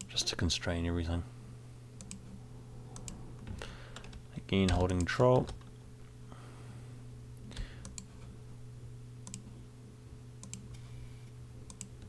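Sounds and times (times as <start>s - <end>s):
low steady hum: 0.0s - 12.0s
computer mouse clicking: 2.0s - 2.2s, 2.9s - 3.2s, 3.9s - 5.7s, 7.8s - 8.2s, 9.2s - 9.5s, 10.4s - 10.8s, 11.7s - 12.0s.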